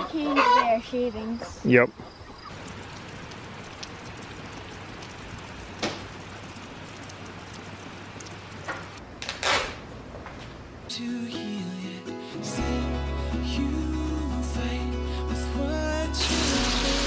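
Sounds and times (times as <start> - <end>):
light rain hissing: 1.6 - 9.0, 11.0 - 17.0.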